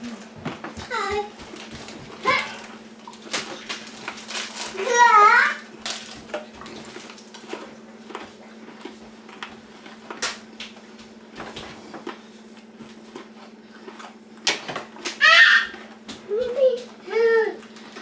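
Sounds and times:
person chewing crunchy food: 11.9 - 14.4.

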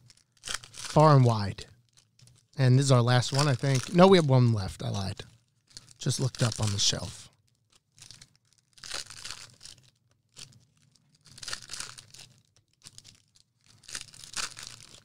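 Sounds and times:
foil wrapper tearing and crinkling: 0.0 - 15.0.

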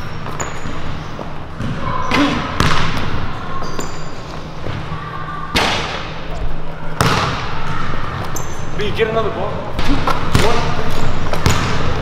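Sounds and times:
basketball bouncing on hardwood floor: 2.6 - 3.0, 11.3 - 11.9.

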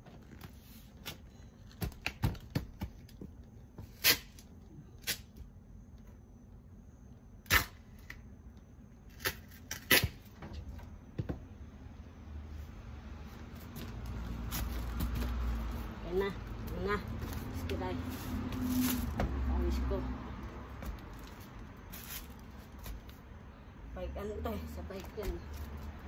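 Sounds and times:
knocks and clicks of packing: 1.1 - 3.5.

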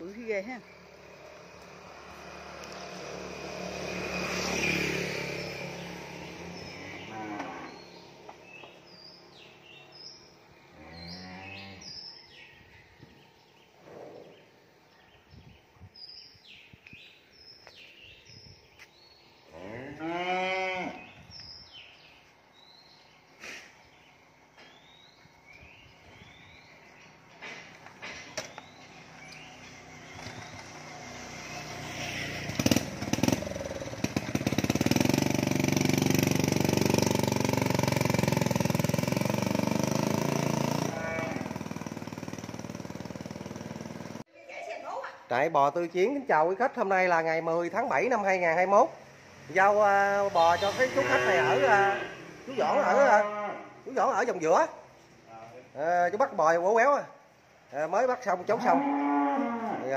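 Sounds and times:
small birds chirping: 0.0 - 53.0
cow mooing: 6.6 - 8.0, 10.7 - 12.0, 19.5 - 21.1, 40.8 - 41.6, 50.6 - 53.8, 58.5 - 59.9
motorbike engine running: 29.2 - 44.2.

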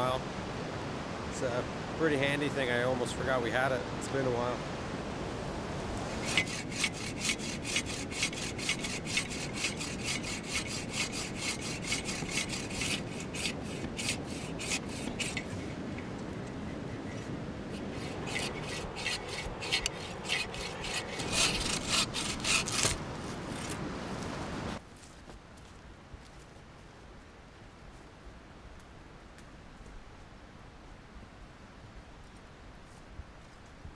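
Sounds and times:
bow saw rasping through wood: 6.0 - 23.8.

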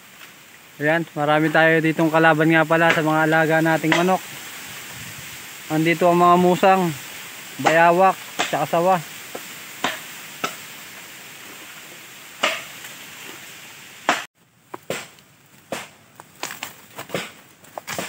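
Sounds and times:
steady hiss: 0.0 - 18.0
knife chopping bamboo: 9.8 - 10.6, 12.4 - 12.7, 14.1 - 16.0, 17.0 - 18.0
isolated cracks: 14.6 - 18.0.

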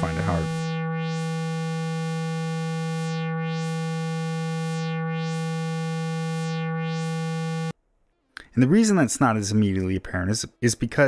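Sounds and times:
synthesizer low note with filter wah: 0.0 - 7.8.

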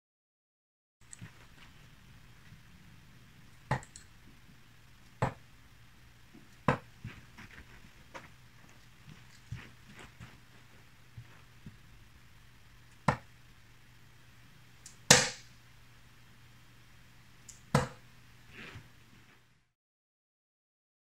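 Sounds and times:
darts thudding into dartboard: 5.2 - 5.4, 13.0 - 13.3, 15.1 - 15.4, 17.7 - 18.0.

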